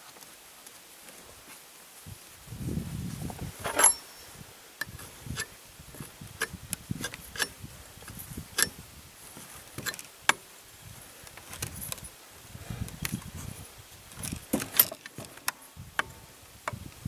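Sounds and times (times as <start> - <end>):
wrench clicking and tapping metal: 6.4 - 7.6, 8.6 - 8.8.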